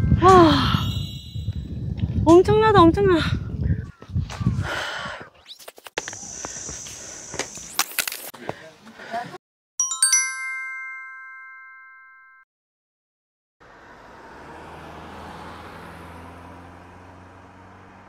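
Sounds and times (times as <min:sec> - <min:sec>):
bright chime ringing: 0:00.4 - 0:01.8, 0:09.8 - 0:12.4.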